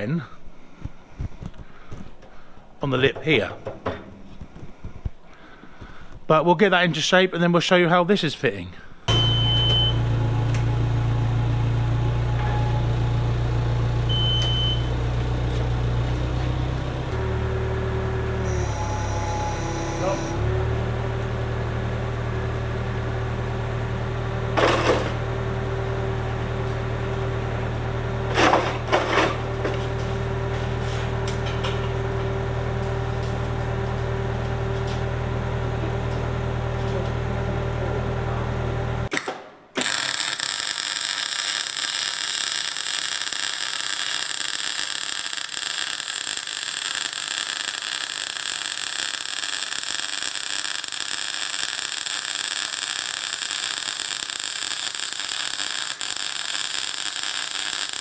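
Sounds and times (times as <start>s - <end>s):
forklift engine running: 9.1s - 39.1s
welder crackling and hissing: 39.8s - 58.0s.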